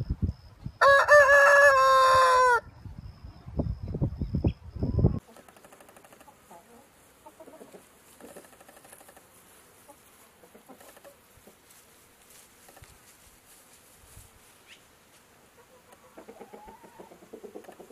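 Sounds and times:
chickens clucking: 0:04.9 - 0:11.8, 0:14.6 - 0:17.9.

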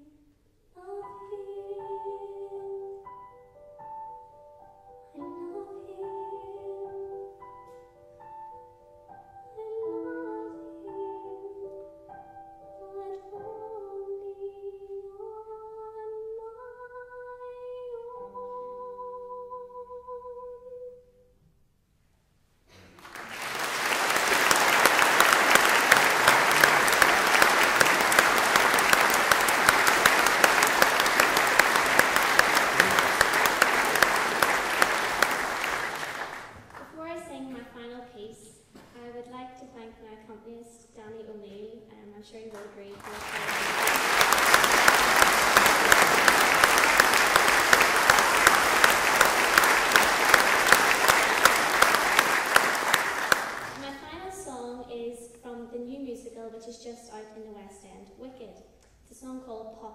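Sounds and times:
close hands clapping: 0:22.8 - 0:36.9, 0:42.6 - 0:53.8
audience applauding: 0:23.0 - 0:36.9, 0:43.0 - 0:54.0.

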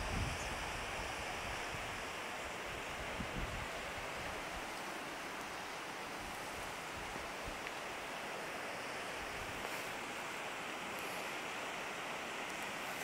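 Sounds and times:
wind buffeting microphone: 0:00.0 - 0:02.0, 0:02.8 - 0:04.4
distant river rushing: 0:00.0 - 0:13.0.

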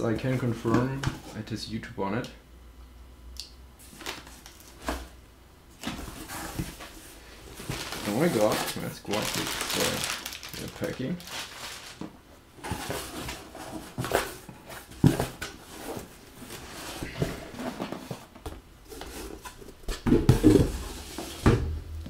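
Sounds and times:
plastic packing rustling: 0:03.8 - 0:05.1, 0:05.8 - 0:21.4
cardboard box knocks and thumps: 0:19.9 - 0:21.8.

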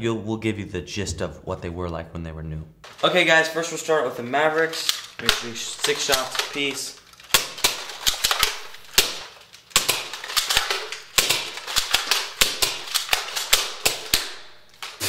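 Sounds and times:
toy guns snapping and clacking: 0:03.6 - 0:15.0.

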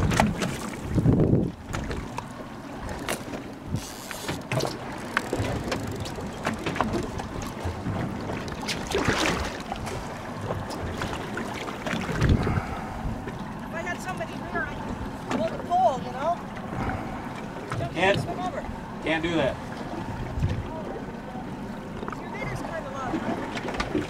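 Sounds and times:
wind buffeting microphone: 0:00.0 - 0:03.8, 0:04.8 - 0:14.0, 0:19.9 - 0:21.0
water slapping boat hull: 0:00.0 - 0:24.0.

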